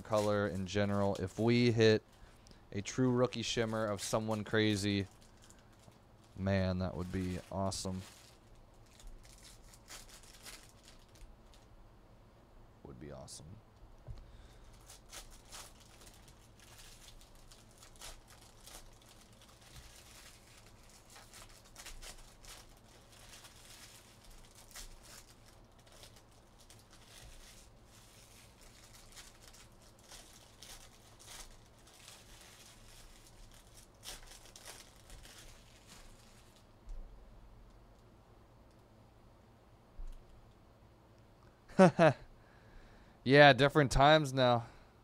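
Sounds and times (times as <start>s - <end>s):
foil wrappers tearing and crinkling: 0.0s - 2.2s, 2.8s - 11.7s, 14.3s - 36.8s.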